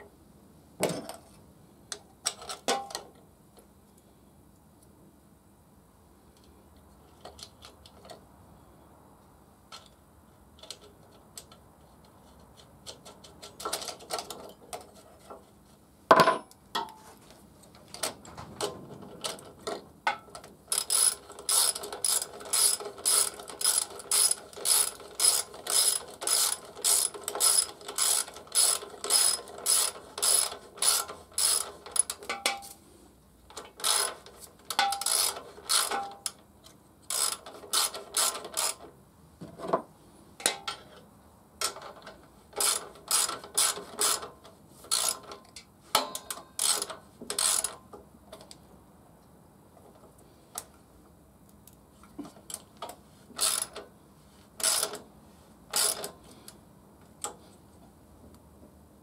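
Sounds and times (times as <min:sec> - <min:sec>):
socket ratchet clicking: 0:20.7 - 0:32.2.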